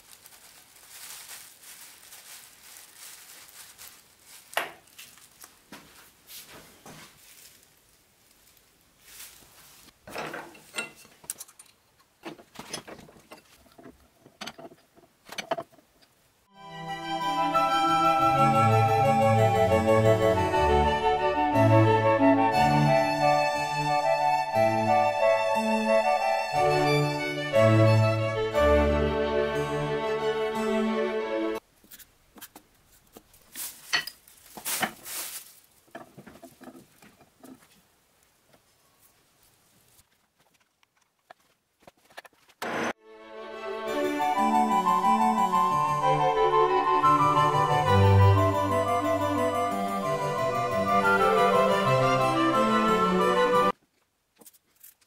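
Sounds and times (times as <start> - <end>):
scraping handling noises: 0.0 - 15.9, 31.8 - 37.9
metallic clinks and knocks: 10.1 - 11.8
string music: 16.5 - 31.6, 42.9 - 53.8.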